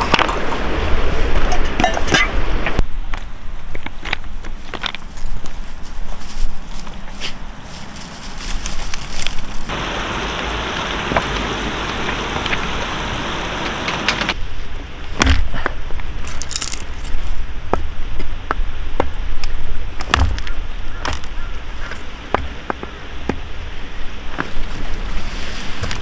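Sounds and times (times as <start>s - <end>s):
steady rushing noise: 6.2s - 16.3s
hatchet splitting firewood: 15.1s - 17.2s, 20.0s - 21.3s.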